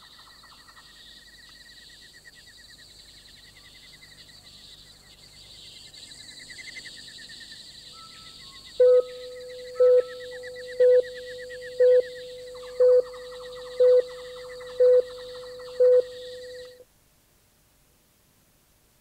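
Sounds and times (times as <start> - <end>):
rapid repeated chirping: 0.0 - 16.8
high steady hiss: 0.0 - 19.0
short electronic beeps: 8.8 - 16.8.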